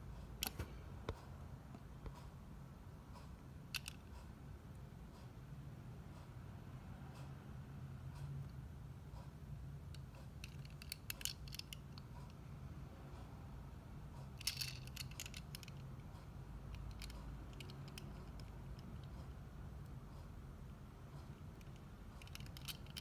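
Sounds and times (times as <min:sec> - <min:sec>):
steady low hum: 0:00.0 - 0:23.0
fingers handling model car clicks: 0:03.7 - 0:04.1, 0:09.9 - 0:12.1, 0:14.4 - 0:16.0, 0:16.7 - 0:19.1, 0:21.5 - 0:23.0.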